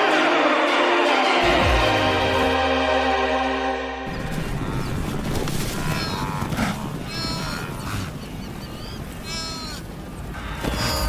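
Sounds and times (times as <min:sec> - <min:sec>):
animal bleating: 0:04.4 - 0:08.1, 0:09.2 - 0:09.8, 0:10.4 - 0:11.0.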